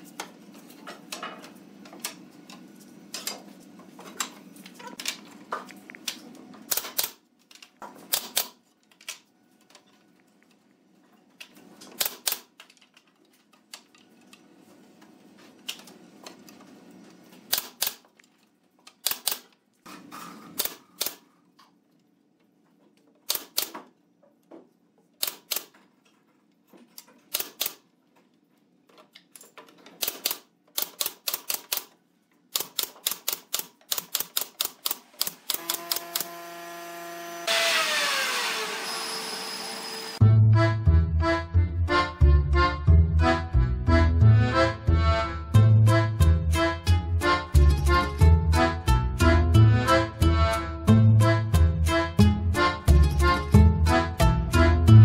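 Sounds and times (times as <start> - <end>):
nail gun firing: 6.7 - 7.2, 8.1 - 8.6, 12.0 - 12.5, 17.5 - 18.0, 19.0 - 19.5, 23.3 - 23.9, 27.3 - 27.8, 30.0 - 31.9, 32.5 - 36.6.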